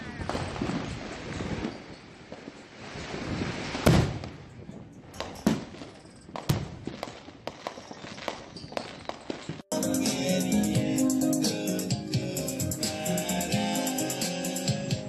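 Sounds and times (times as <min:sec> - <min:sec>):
fireworks bangs: 0:00.0 - 0:04.6, 0:05.2 - 0:09.7
small quick firework pops: 0:03.3 - 0:04.4
steady hiss: 0:09.7 - 0:15.0.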